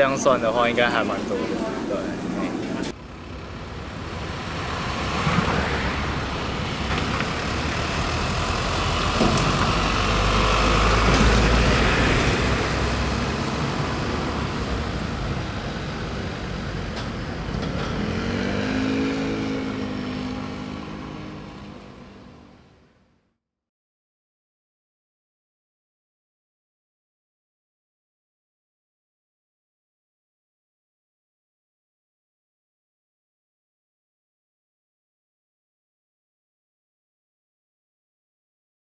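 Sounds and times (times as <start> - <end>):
cars passing on a road: 0.0 - 23.3
vehicle accelerating: 0.2 - 22.9.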